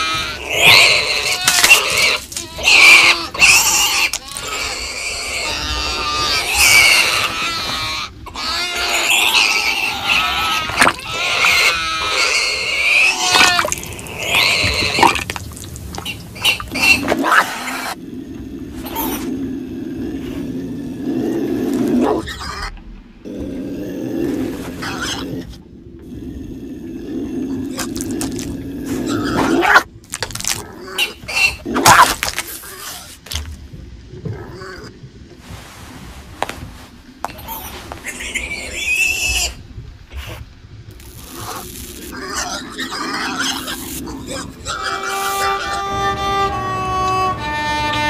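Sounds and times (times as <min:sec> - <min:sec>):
small creature squealing and grunting: 0:00.0 - 0:15.4
small creature growling: 0:00.0 - 0:33.1.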